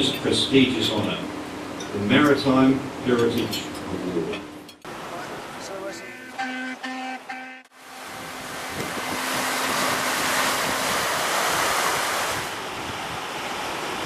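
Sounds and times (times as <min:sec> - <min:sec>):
sea water rushing along bow: 0:04.9 - 0:14.0
wind buffeting microphone: 0:08.0 - 0:14.0.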